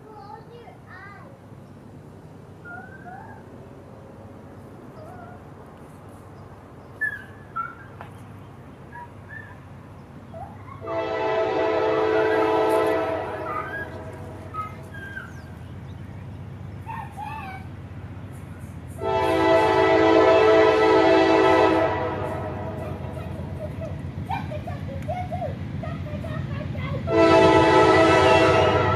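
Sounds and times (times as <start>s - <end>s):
birds chirping: 1.3s - 19.8s
locomotive air horn blasts: 10.8s - 14.6s, 19.0s - 22.8s, 27.1s - 28.9s.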